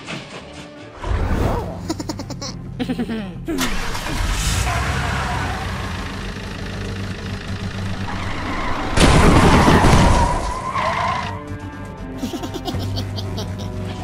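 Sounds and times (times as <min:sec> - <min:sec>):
cartoon car engine running: 0:03.6 - 0:10.0
car crashing through fence: 0:08.1 - 0:10.6.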